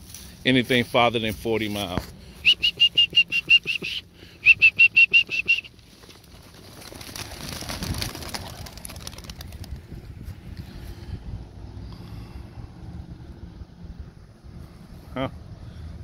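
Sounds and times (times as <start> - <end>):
pigeon wings flapping: 5.1 - 10.0.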